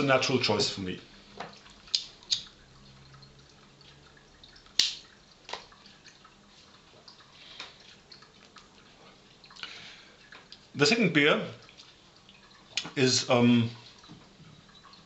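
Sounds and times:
wet clicks and lip smacks: 0:01.9 - 0:02.5, 0:04.7 - 0:05.7.

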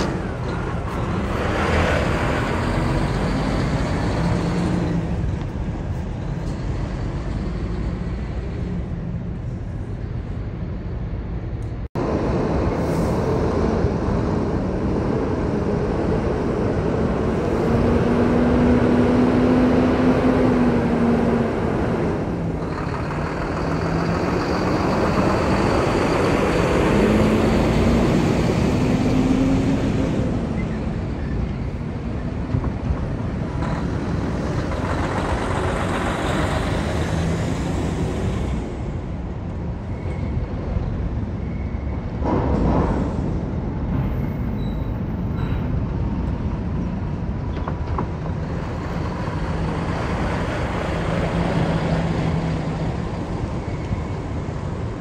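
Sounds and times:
diesel trucks driving: 0:00.0 - 0:55.0.

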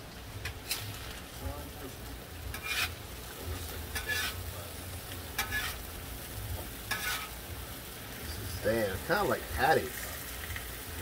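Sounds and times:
sausages sizzling on griddle: 0:00.0 - 0:11.0
metal spatula scraping griddle: 0:00.4 - 0:01.2, 0:02.5 - 0:03.1, 0:03.9 - 0:04.5, 0:05.4 - 0:05.9, 0:06.8 - 0:07.5.

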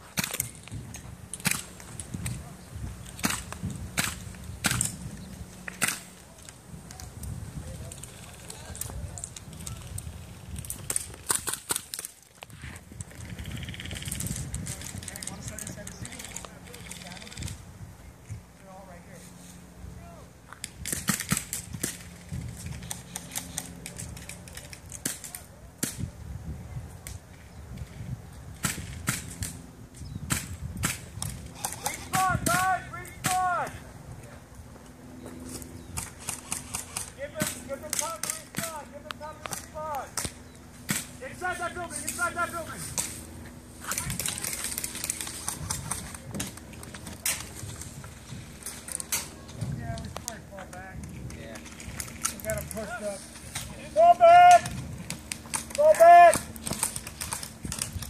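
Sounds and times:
airsoft guns firing: 0:10.8 - 0:12.1.

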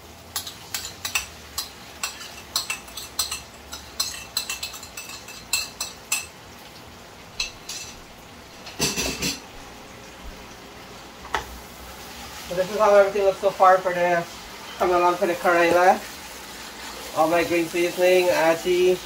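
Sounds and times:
spoon scraping and tapping plate: 0:00.4 - 0:06.3.

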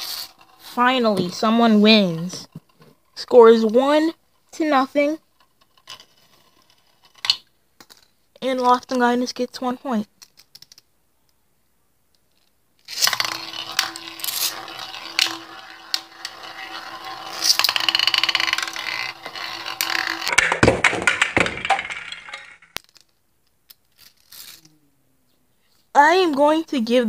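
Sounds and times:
spinning tops whirring on glass: 0:12.9 - 0:22.8
tops clacking together: 0:13.0 - 0:22.9.

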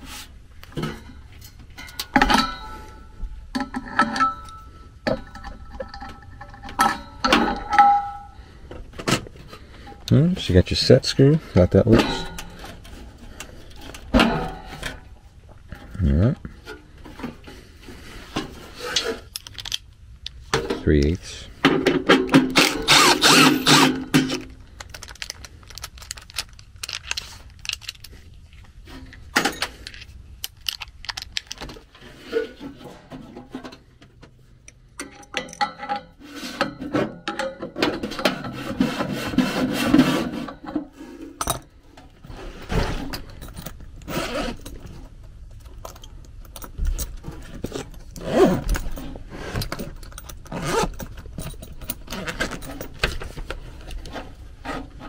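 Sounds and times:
hand tools clinking on metal: 0:03.6 - 0:08.4.

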